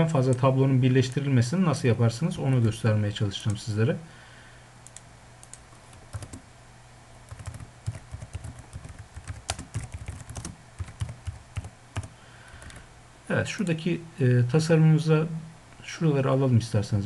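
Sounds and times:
faint steady hum: 0.0 - 17.0
keyboard typing clicks: 4.8 - 6.4, 7.3 - 12.8.

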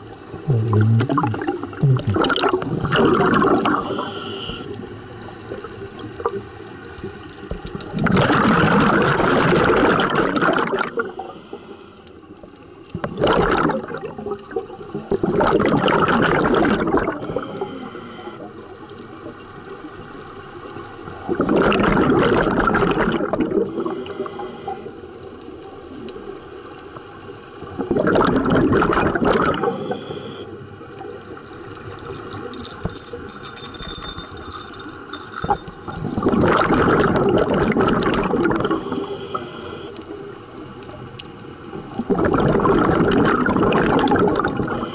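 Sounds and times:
scuba regulator exhalation bubbles: 0.0 - 4.8, 7.6 - 11.5, 12.9 - 18.5, 21.2 - 24.8, 27.7 - 30.4, 32.0 - 39.9, 41.8 - 44.9.

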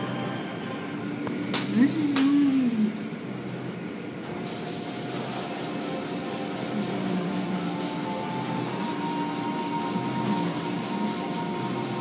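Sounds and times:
motors humming: 0.0 - 12.0
spray and cloth strips swishing: 4.3 - 12.0.

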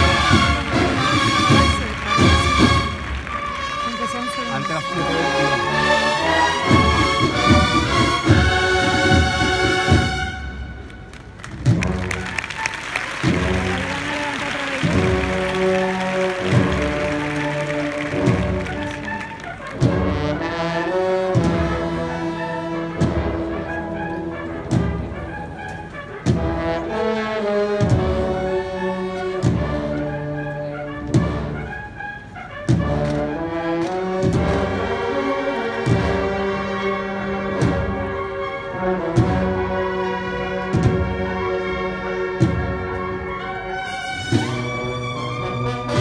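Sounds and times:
heavy drum beat: 0.0 - 3.2, 13.1 - 18.9
cornets playing chords: 0.0 - 46.0.

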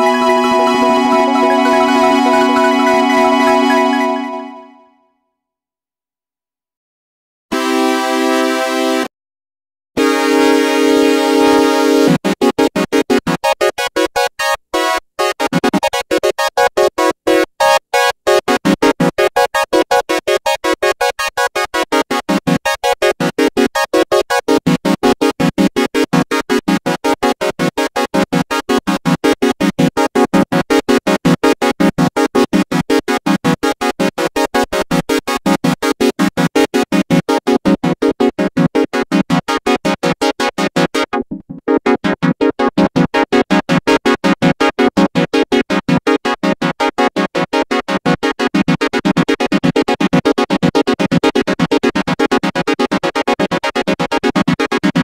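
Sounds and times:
synthesizer arpeggio: 0.0 - 5.0.

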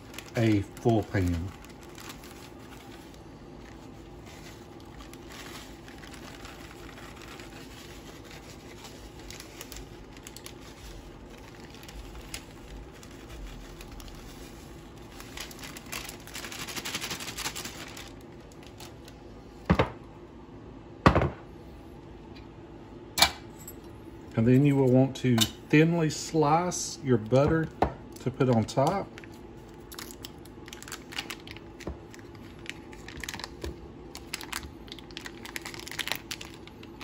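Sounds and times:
plastic bag crinkling: 0.0 - 19.3, 27.2 - 37.0
faint steady hum: 0.0 - 37.0.

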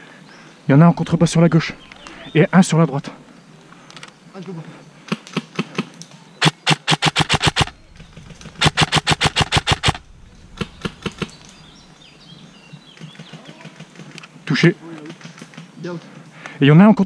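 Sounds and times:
airsoft rifle firing: 6.4 - 11.4.

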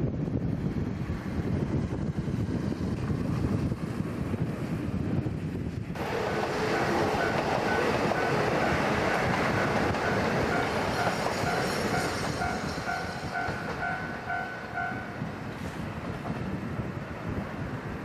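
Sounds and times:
train wheels rumbling on rails: 0.0 - 18.0
short bell-like tone: 11.9 - 15.2.

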